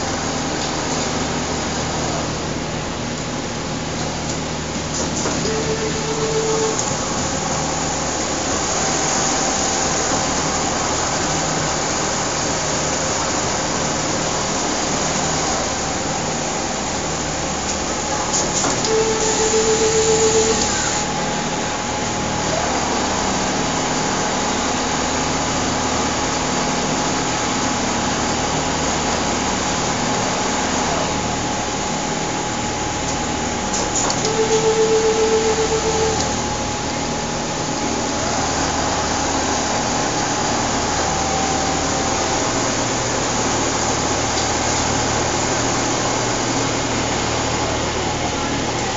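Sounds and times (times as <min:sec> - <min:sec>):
machinery hum: 0:00.0 - 0:48.9
steady tone: 0:34.3 - 0:37.0.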